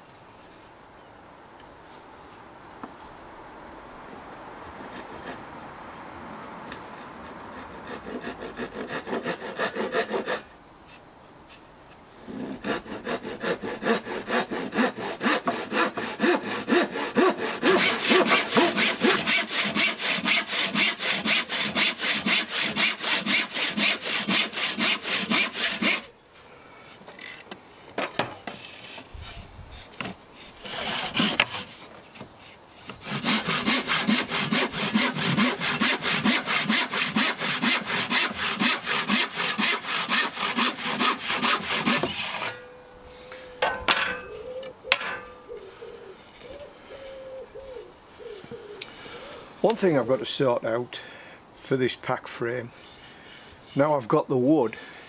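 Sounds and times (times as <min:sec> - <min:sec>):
hand saw cutting wood: 0:06.7 - 0:10.5, 0:12.2 - 0:26.1, 0:28.5 - 0:31.9, 0:32.8 - 0:42.6, 0:52.8 - 0:54.6.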